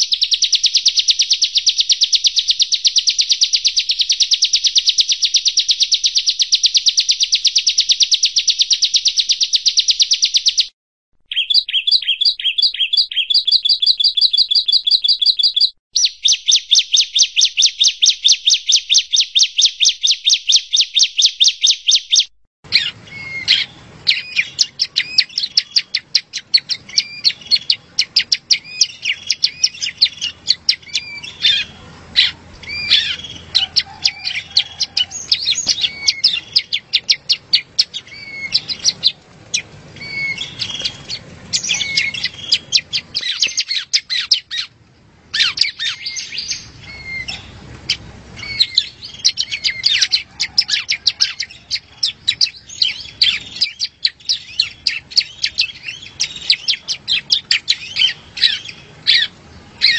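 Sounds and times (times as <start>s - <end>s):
songbird chattering and trilling: 0.0s - 10.7s, 11.3s - 59.9s.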